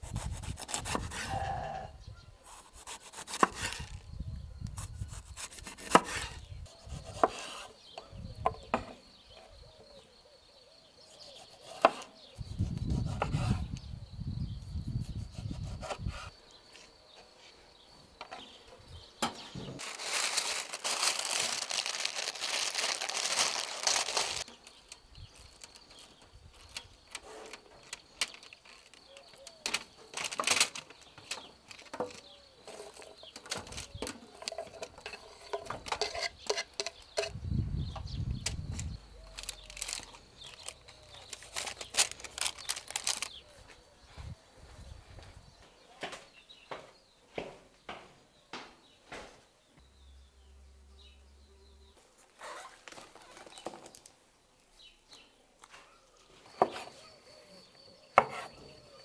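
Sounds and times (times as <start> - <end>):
parchment paper rustling: 19.6 - 36.0, 39.2 - 43.7
paper crinkling in metal tray: 19.8 - 24.5, 26.6 - 32.2, 39.3 - 43.4.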